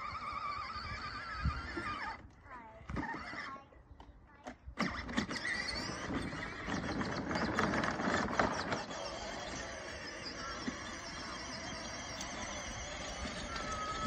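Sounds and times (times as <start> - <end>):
plastic toy car wheels rattling: 4.9 - 14.0.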